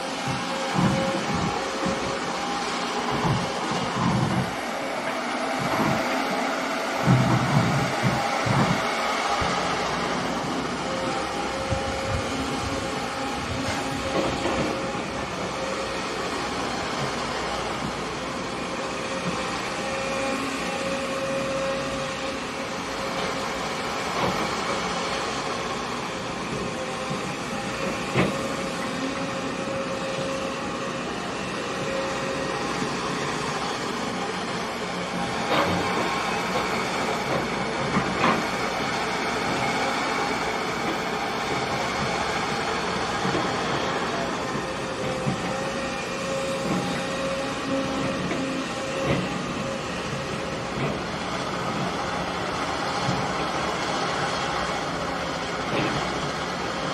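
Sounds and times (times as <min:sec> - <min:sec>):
excavator engine hum: 0:00.0 - 0:56.9.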